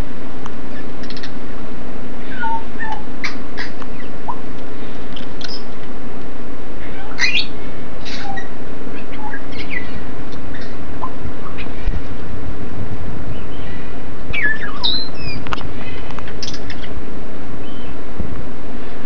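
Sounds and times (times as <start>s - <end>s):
parrots whistling and squeaking: 2.2s - 4.1s, 5.4s - 5.7s, 6.8s - 10.8s, 13.3s - 15.6s, 16.4s - 16.9s.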